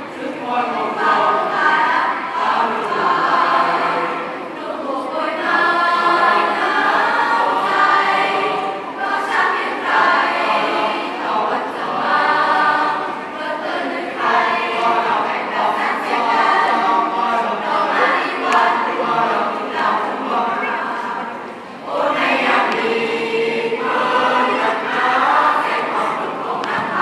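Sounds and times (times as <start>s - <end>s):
choir singing in harmony: 0.0s - 27.0s.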